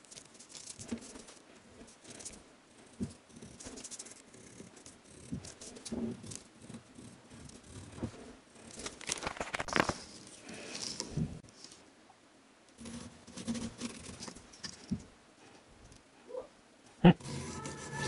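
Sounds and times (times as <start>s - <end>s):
paper rustling: 0.0s - 1.4s, 8.7s - 11.8s
pencil scratching on wood: 0.8s - 8.8s, 12.8s - 14.2s, 17.2s - 18.0s.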